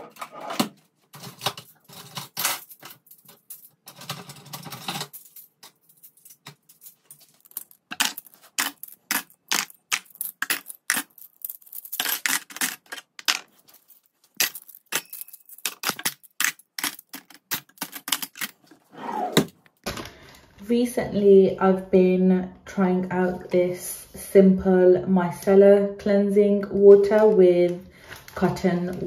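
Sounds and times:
metal cutlery clinking: 0:01.2 - 0:18.6.

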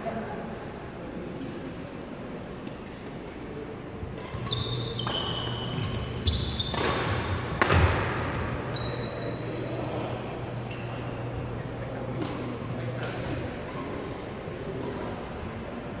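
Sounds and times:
shoes squeaking on floor: 0:04.2 - 0:07.3, 0:08.6 - 0:09.7
racket hitting shuttlecock: 0:06.6 - 0:08.6.

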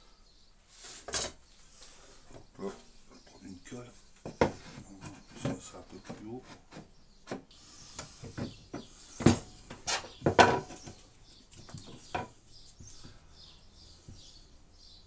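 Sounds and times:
knocks and clicks of furniture parts: 0:04.2 - 0:11.0.

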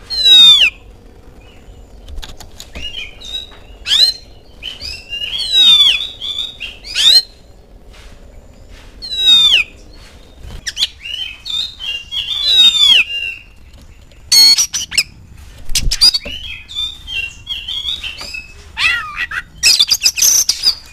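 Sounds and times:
harsh bird calls: 0:00.0 - 0:20.9
bird singing whistles and chatter: 0:00.1 - 0:00.8, 0:02.7 - 0:07.4, 0:09.0 - 0:10.0, 0:10.6 - 0:13.6, 0:15.7 - 0:20.9.

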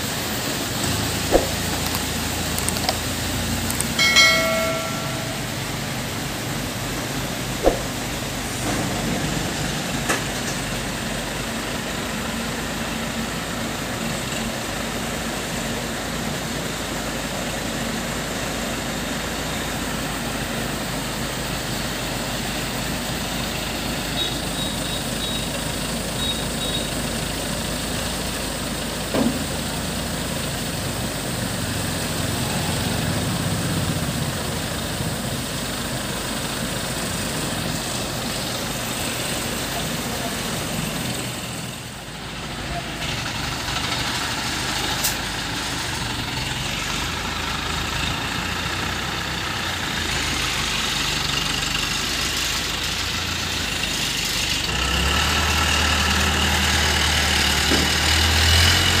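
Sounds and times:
crane diesel engine running: 0:00.0 - 0:59.0
sharp knock: 0:01.3 - 0:01.6, 0:07.6 - 0:08.0.

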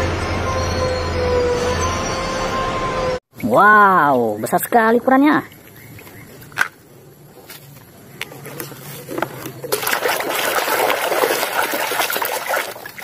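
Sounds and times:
hand sloshing through foamy water: 0:09.6 - 0:13.0.

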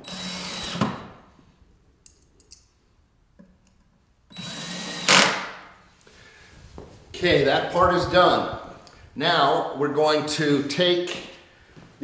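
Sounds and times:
cordless drill driving screws: 0:00.0 - 0:01.0, 0:04.3 - 0:05.5.

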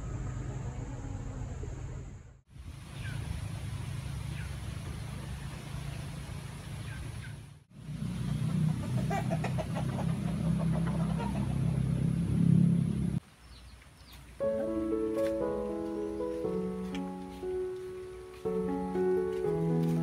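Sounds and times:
chickens clucking: 0:08.1 - 0:12.1.

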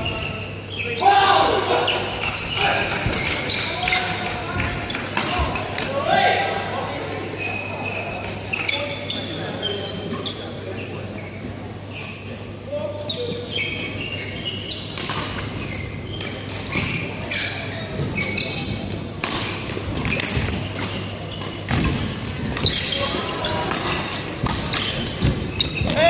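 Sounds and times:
shoes squeaking on court: 0:00.0 - 0:01.1, 0:01.7 - 0:05.7, 0:07.4 - 0:26.0
murmur of voices: 0:00.0 - 0:26.0
racket hitting shuttlecock: 0:23.7 - 0:26.0.

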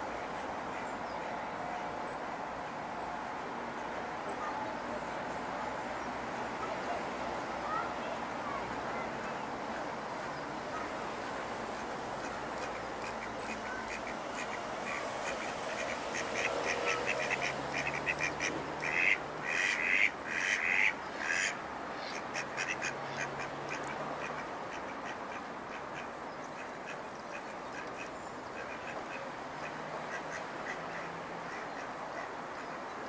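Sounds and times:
ducks quacking: 0:12.2 - 0:32.8.

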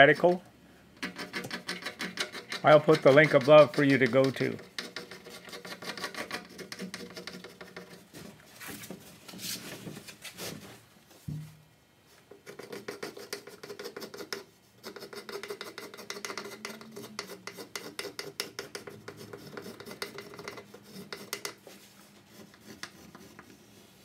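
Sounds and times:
marker scratching on plywood: 0:01.0 - 0:08.2, 0:12.3 - 0:24.0.

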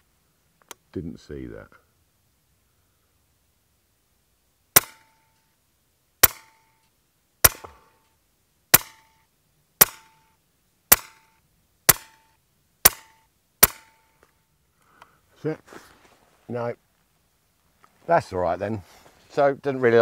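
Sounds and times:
air rifle shots: 0:04.8 - 0:05.2, 0:06.2 - 0:06.6, 0:07.4 - 0:07.9, 0:08.7 - 0:09.2, 0:09.8 - 0:10.2, 0:10.9 - 0:11.3, 0:11.9 - 0:14.0.

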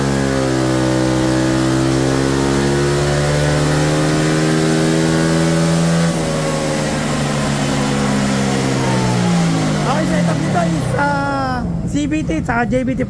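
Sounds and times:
scooter engine revving at full throttle: 0:00.0 - 0:13.0
dyno rollers winding down: 0:04.8 - 0:13.0.

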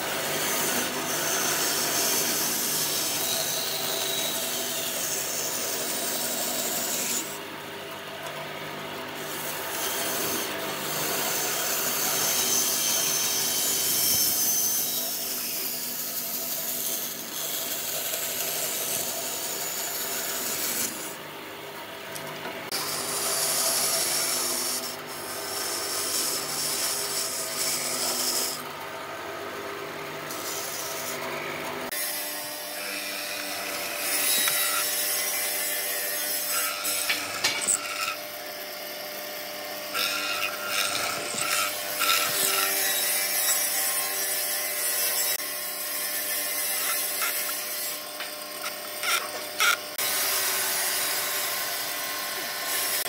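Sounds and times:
band saw cutting wood: 0:00.0 - 0:21.4, 0:22.1 - 0:53.0
chisel boring into wood: 0:33.3 - 0:38.6, 0:39.8 - 0:45.4, 0:46.6 - 0:50.1.

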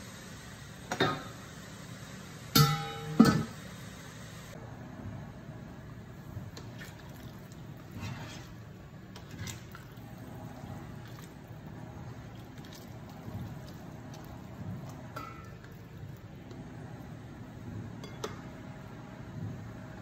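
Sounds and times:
spatula stirring stew: 0:07.8 - 0:09.8
spatula scraping pan: 0:07.9 - 0:08.6.

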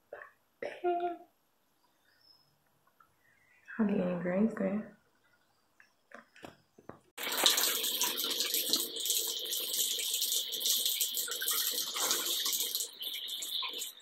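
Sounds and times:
water pouring into bathtub: 0:07.2 - 0:14.0.

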